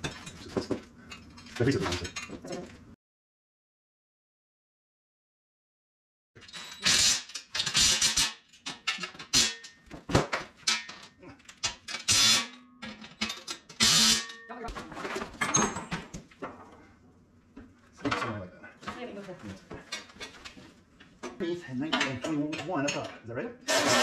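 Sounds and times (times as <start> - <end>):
metal parts clattering: 10.6 - 14.3.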